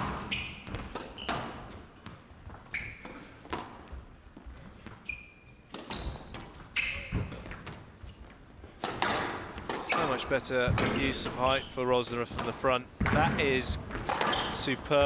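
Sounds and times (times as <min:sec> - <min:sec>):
shoes squeaking on wooden floor: 0:00.0 - 0:15.0
squash ball cracks: 0:08.8 - 0:10.1, 0:13.9 - 0:14.5.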